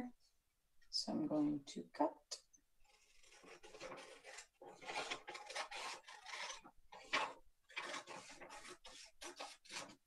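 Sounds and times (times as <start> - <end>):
scissors snipping paper: 3.2 - 10.0.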